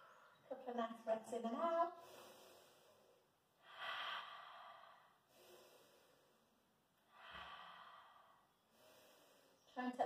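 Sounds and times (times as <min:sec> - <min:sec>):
woman breathing deeply: 0:02.0 - 0:09.7.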